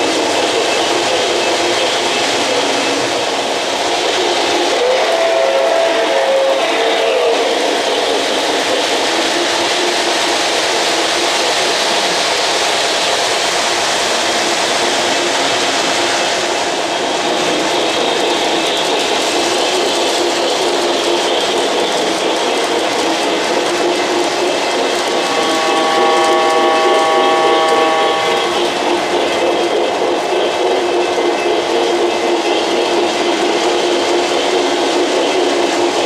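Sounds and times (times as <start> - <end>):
model train wheels rattling: 7.4 - 36.0
locomotive motor hum: 17.0 - 32.1.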